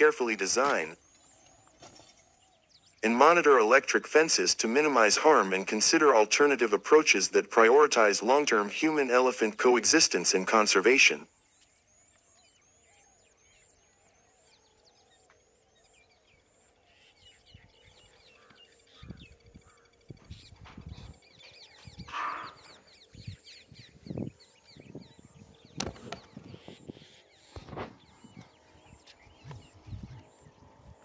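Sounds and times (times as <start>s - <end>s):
small birds chirping: 0.0s - 31.0s.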